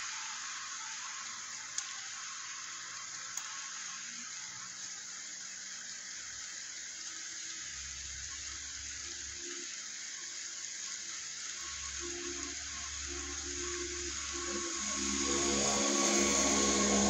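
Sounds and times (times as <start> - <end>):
rain on a wet street: 0.0 - 17.0
low rumble: 12.8 - 17.0.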